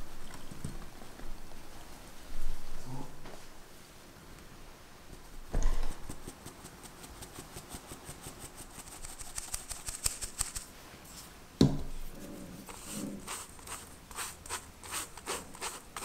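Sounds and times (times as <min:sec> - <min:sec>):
sieve sifting with light ticking: 0:05.9 - 0:10.8, 0:12.6 - 0:16.0.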